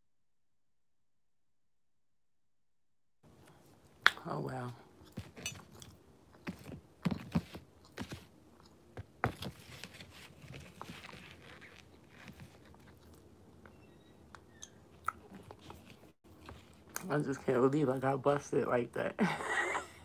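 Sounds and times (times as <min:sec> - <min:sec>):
crunching crumbly chunks: 0:05.0 - 0:13.6.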